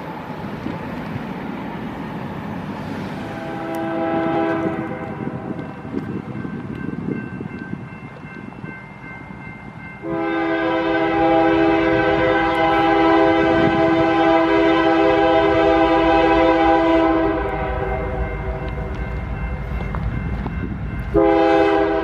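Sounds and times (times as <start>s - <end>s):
train rumble: 0.0s - 22.0s
locomotive air horn chord: 3.2s - 5.5s, 10.0s - 18.9s, 21.1s - 22.0s.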